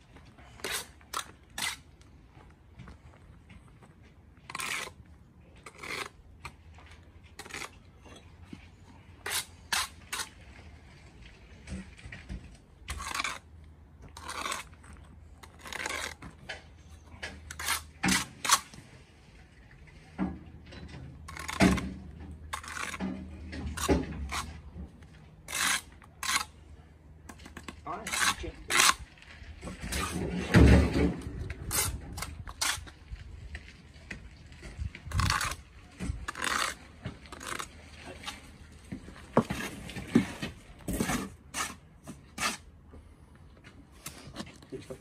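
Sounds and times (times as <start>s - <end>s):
trowel scraping mortar on brick: 0.4s - 2.1s, 4.4s - 6.7s, 7.3s - 8.6s, 9.2s - 10.4s, 12.9s - 18.8s, 21.3s - 24.7s, 25.4s - 26.6s, 27.3s - 33.0s, 35.1s - 38.5s, 39.4s - 42.8s.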